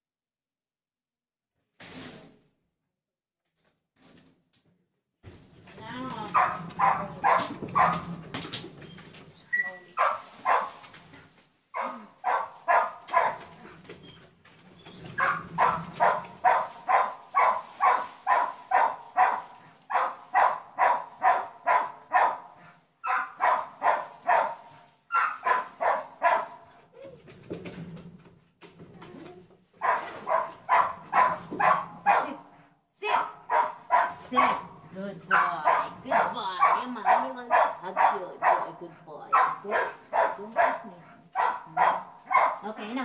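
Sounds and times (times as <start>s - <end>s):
dog barking: 6.3s - 8.2s, 10.0s - 10.8s, 11.8s - 13.6s, 15.2s - 26.6s, 29.8s - 42.7s.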